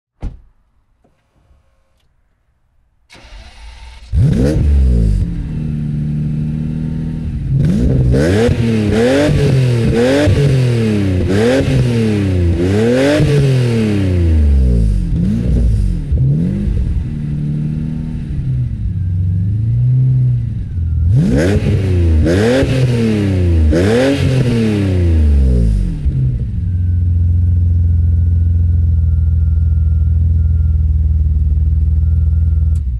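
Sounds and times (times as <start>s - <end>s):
car engine revving: 3.1s - 29.0s
car engine idling: 14.3s - 24.4s, 25.1s - 32.9s
faint high whine: 26.6s - 32.9s.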